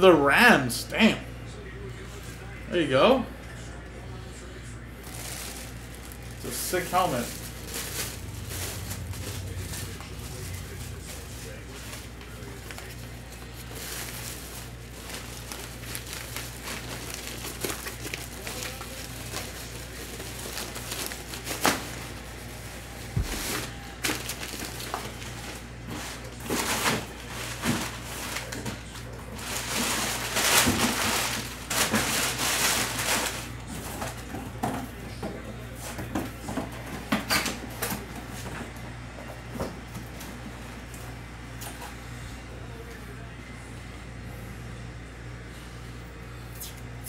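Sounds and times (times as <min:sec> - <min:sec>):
low electrical hum: 0:00.0 - 0:47.0
packaging crinkling and rustling: 0:05.0 - 0:34.3.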